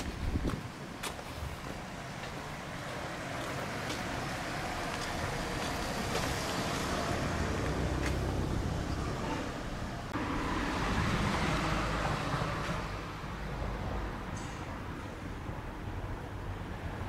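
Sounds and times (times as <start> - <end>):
gusty wind on microphone: 0.0 - 1.8.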